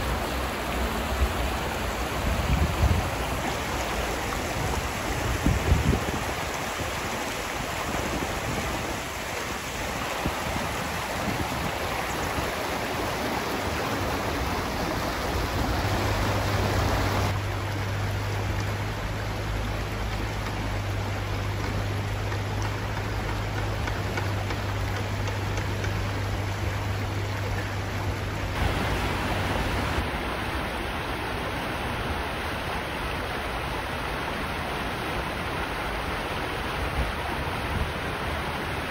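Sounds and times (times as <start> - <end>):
water rushing over stones: 0.0 - 38.9
low steady hum: 11.2 - 36.6.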